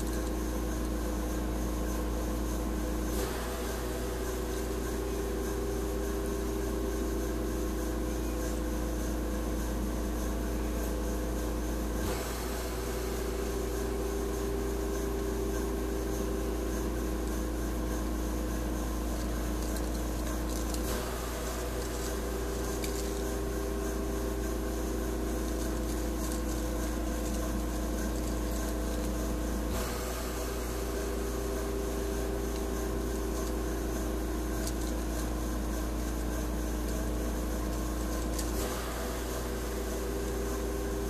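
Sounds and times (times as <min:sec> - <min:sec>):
hiss: 0:12.0 - 0:16.0, 0:29.6 - 0:34.2, 0:38.2 - 0:41.0.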